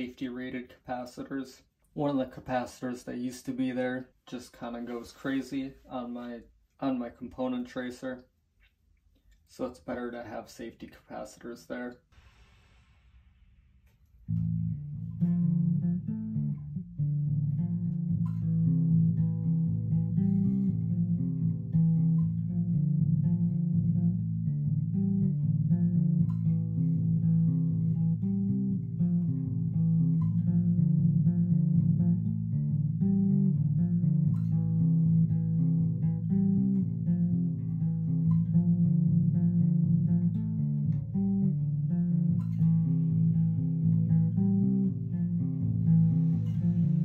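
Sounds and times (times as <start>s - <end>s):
electric bass plucked notes: 13.2s - 47.0s.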